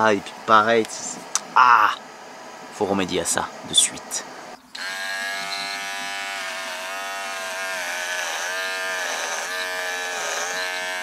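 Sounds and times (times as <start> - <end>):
electric hair clipper buzzing: 4.8 - 11.0.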